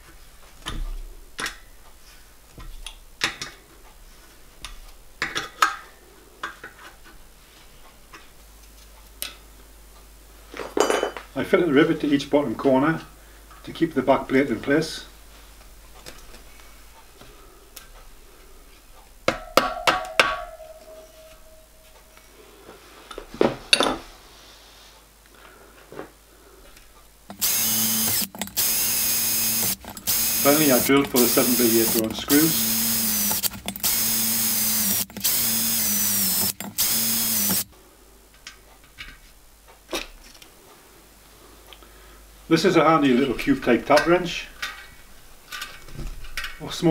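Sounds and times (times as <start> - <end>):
copper shell ringing: 19.3 - 22.1
electric hand drill drilling: 27.3 - 37.7.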